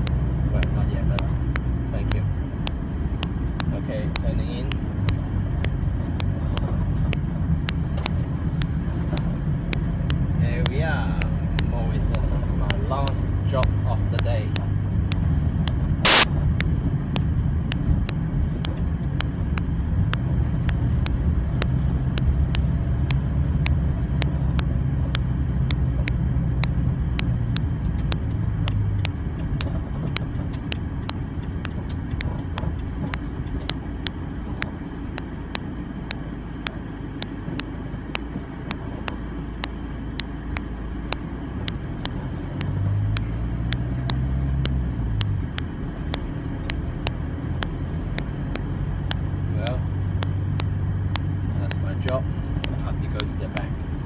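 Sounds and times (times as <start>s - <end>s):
sharp clicks: 0.0s - 53.7s
car engine and road rumble: 0.0s - 54.0s.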